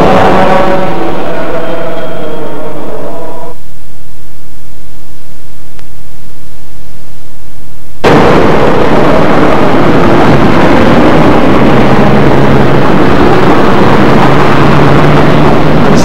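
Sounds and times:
passenger train passing: 0.0s - 3.4s, 8.0s - 16.0s
faint tape hiss: 3.6s - 10.3s.

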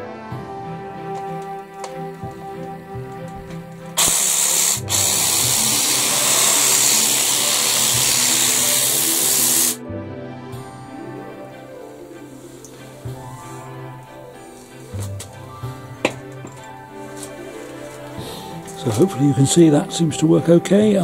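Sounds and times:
background music: 0.0s - 21.0s
hedge trimmer motor and blade: 3.2s - 9.8s.

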